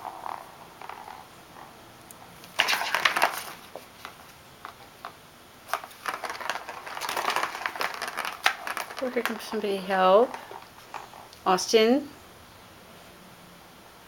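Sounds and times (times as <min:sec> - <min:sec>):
plastic toy clattering: 0:02.4 - 0:11.2.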